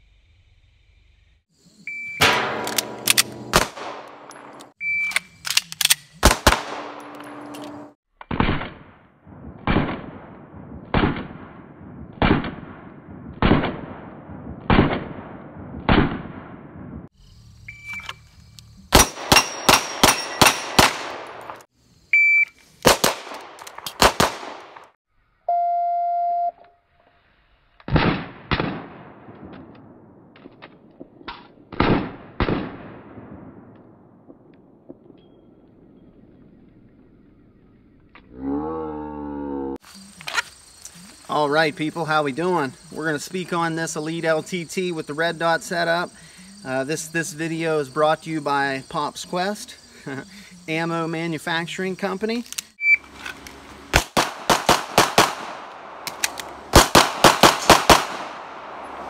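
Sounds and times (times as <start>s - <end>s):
short electronic beeps: 1.9s - 2.3s, 4.8s - 5.3s, 17.7s - 18.2s, 22.1s - 22.6s, 25.5s - 26.6s, 52.8s - 53.1s
pistol shots: 2.2s - 4.7s, 5.8s - 7.5s, 9.6s - 16.8s, 18.9s - 21.6s, 22.8s - 24.8s, 53.9s - 58.8s.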